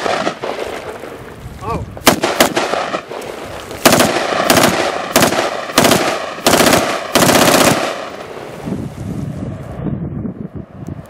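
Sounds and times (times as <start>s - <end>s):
rifle shots: 0.0s - 1.0s, 2.0s - 8.5s.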